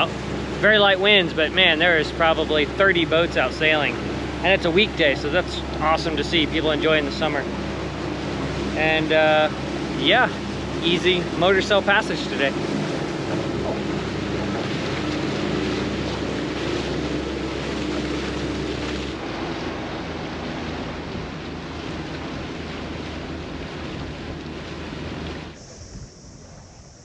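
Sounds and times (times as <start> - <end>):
boat engine humming: 0.0 - 27.0
wind and water rushing past boat: 0.0 - 27.0
high hiss: 25.6 - 27.0.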